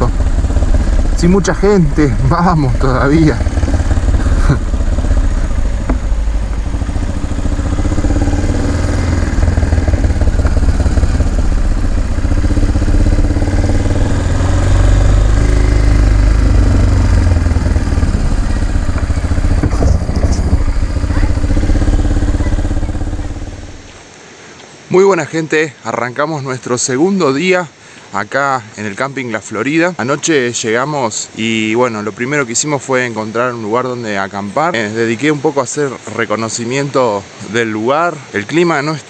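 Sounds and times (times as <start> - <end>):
motorcycle engine idling: 0.0 - 24.0.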